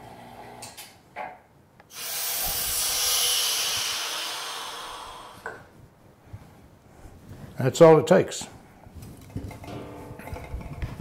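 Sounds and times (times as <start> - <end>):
air hissing through valve: 1.9 - 5.7.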